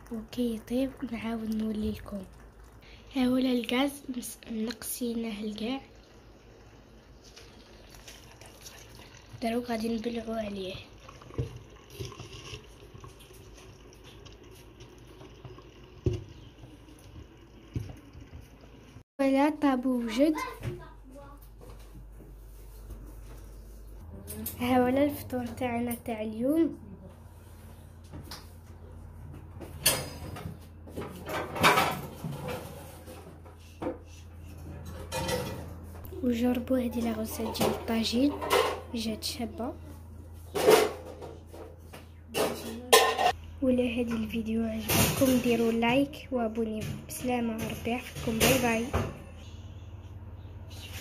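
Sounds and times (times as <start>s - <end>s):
sauce bubbling: 0.0s - 19.0s.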